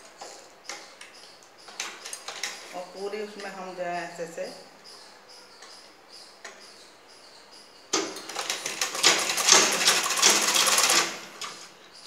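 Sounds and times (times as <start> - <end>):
sewing machine stitching: 8.0 - 11.7.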